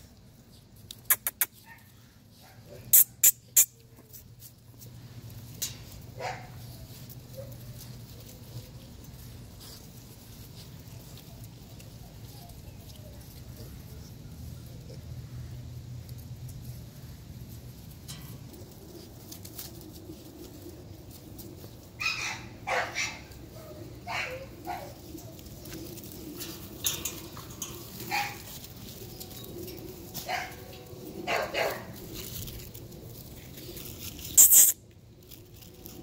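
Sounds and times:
puppies barking: 0:06.2 - 0:08.2, 0:21.9 - 0:32.4.

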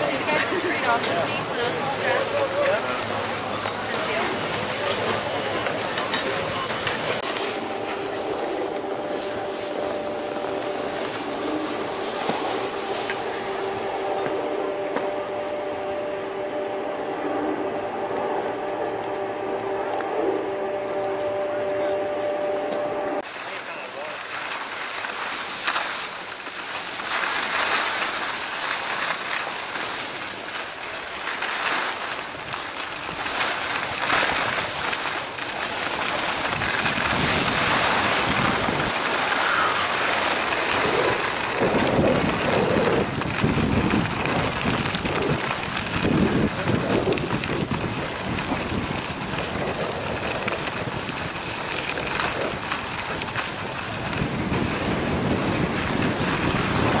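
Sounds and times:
skis scraping over snow: 0:00.0 - 0:57.0
wind on microphone: 0:35.8 - 0:57.0.

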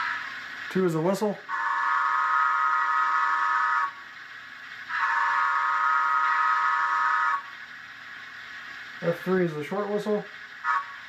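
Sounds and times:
steam locomotive whistle blasts: 0:01.5 - 0:04.1, 0:04.9 - 0:07.6, 0:10.6 - 0:11.0.

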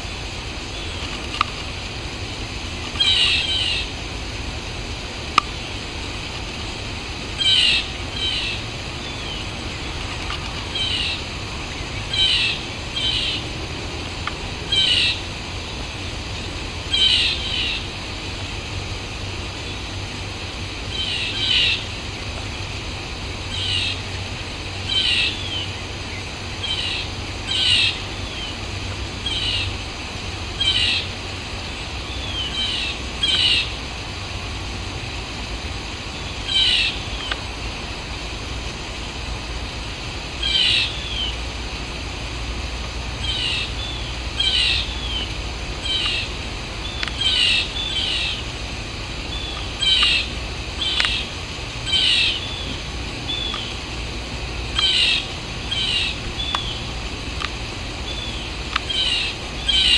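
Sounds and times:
blue jay calling: 0:00.0 - 0:37.6, 0:39.2 - 0:59.9
steady low rumble: 0:00.0 - 0:59.9.

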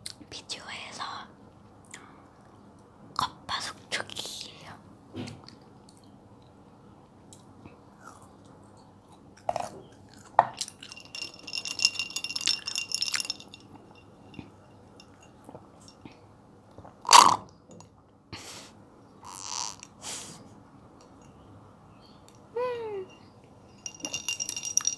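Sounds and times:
ice cubes clinking in glass: 0:10.6 - 0:16.0, 0:23.7 - 0:24.9.

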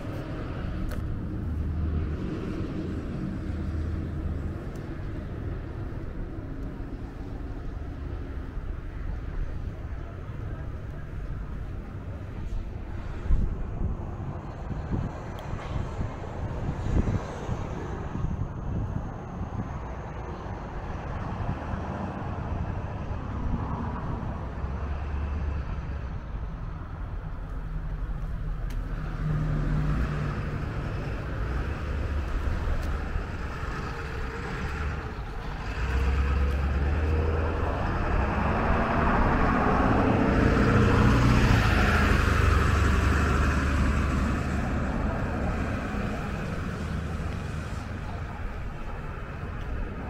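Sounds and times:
road traffic: 0:00.0 - 0:50.0
vehicle driving past: 0:27.8 - 0:50.0.

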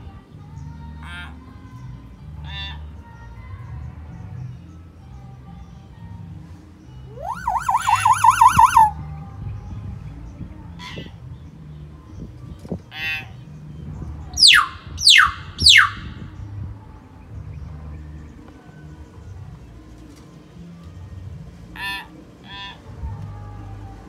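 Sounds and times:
myna whistling and warbling: 0:07.1 - 0:08.9.

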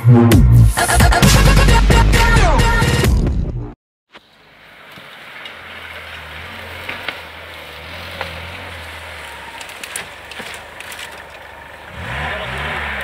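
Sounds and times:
car engine humming: 0:04.2 - 0:13.0.

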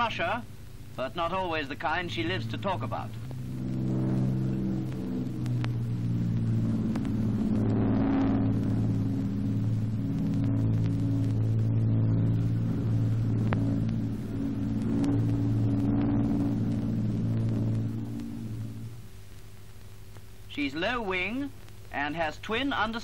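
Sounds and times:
piston aircraft engines droning: 0:00.0 - 0:23.0.

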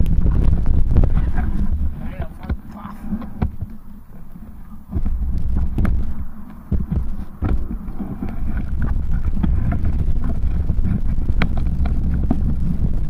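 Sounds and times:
bike rattling over bumps: 0:00.0 - 0:13.0
wind buffeting microphone: 0:00.0 - 0:13.0.

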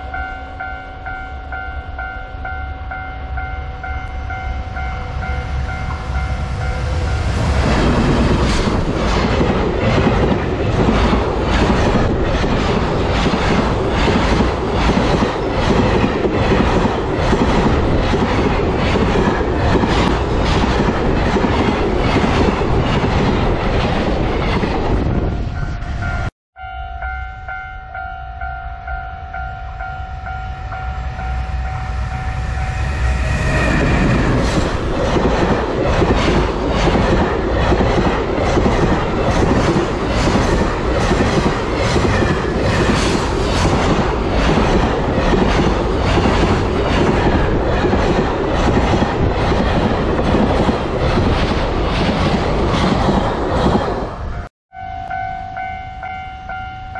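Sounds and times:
level-crossing warning bell ringing: 0:00.0 - 0:07.6, 0:25.2 - 0:33.8, 0:54.3 - 0:56.9
train wheels clattering over rail joints: 0:33.8 - 0:54.1.

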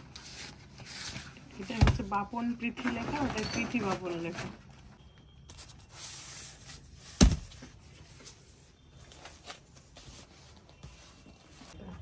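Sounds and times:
paper cards and bags rustling: 0:00.0 - 0:12.0.

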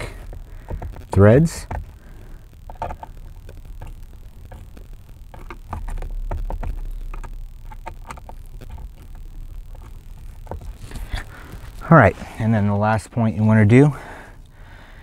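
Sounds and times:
low rumble of handling: 0:00.0 - 0:14.6
clicks and taps on plastic trim: 0:00.6 - 0:01.9.

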